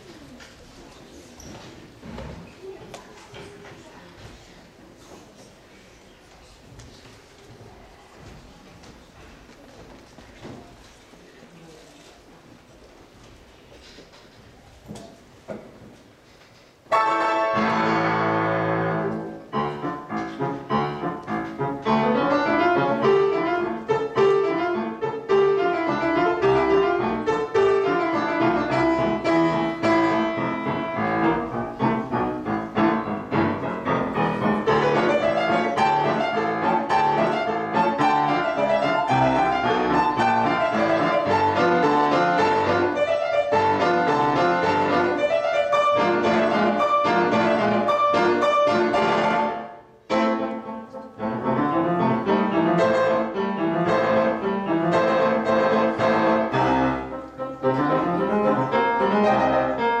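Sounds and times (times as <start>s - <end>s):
grand piano quick runs: 16.9s - 60.0s.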